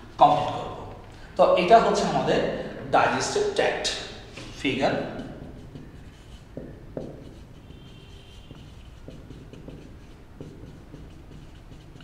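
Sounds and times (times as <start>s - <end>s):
marker scratching on whiteboard: 3.1s - 12.0s
marker tip tapping: 5.2s - 12.0s.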